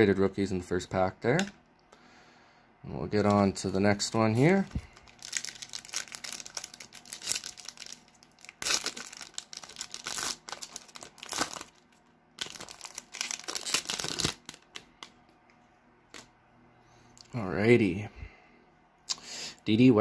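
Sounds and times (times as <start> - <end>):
foil wrapper tearing and crinkling: 4.8 - 14.9.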